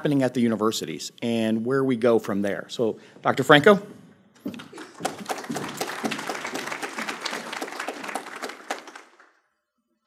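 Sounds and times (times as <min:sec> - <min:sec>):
audience applauding: 0:04.7 - 0:09.5.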